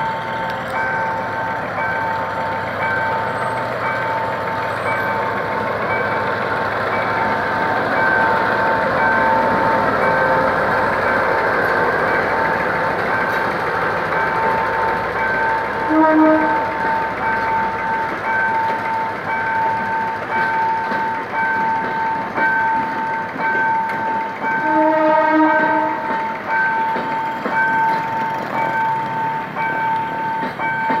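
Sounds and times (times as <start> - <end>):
train coaches rolling on rails: 0.0 - 31.0
train horn: 15.8 - 16.8, 24.6 - 26.2.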